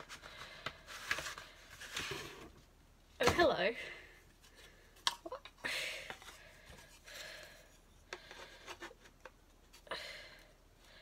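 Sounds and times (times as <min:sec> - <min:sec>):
cardboard and paper rustling: 0:00.0 - 0:03.5.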